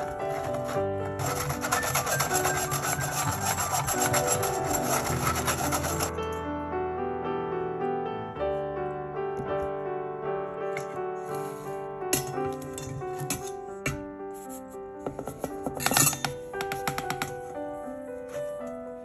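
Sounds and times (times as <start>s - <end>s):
whisk rasping through mesh sieve: 0.0s - 6.1s
piano music: 0.0s - 19.0s.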